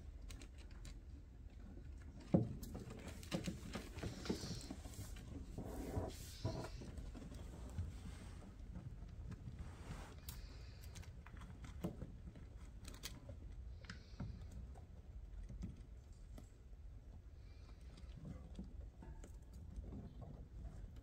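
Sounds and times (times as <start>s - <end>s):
rodents scrabbling in bedding: 0.2s - 13.4s.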